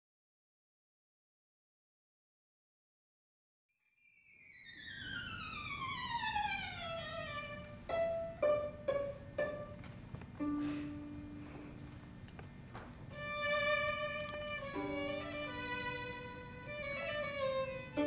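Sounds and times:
solo violin: 4.5 - 11.9, 13.0 - 18.0.

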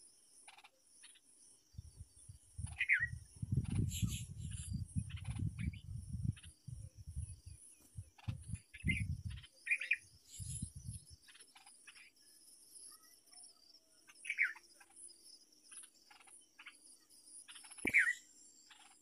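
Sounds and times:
low rumble on the microphone: 1.8 - 9.5, 10.3 - 11.2
short bird chirps: 17.5 - 18.9.

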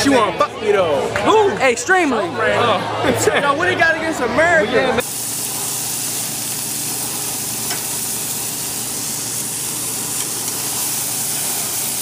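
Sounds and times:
burger patties sizzling: 5.0 - 12.0.

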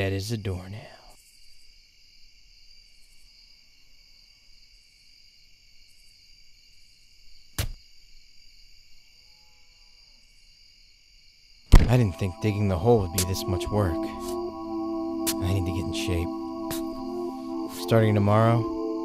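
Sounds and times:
crickets chirring: 0.0 - 19.0
sharp knock: 7.6 - 7.8.

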